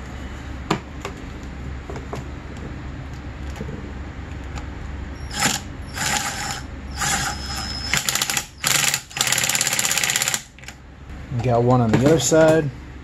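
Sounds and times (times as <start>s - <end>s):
power ratchet bursts: 5.2s - 10.6s.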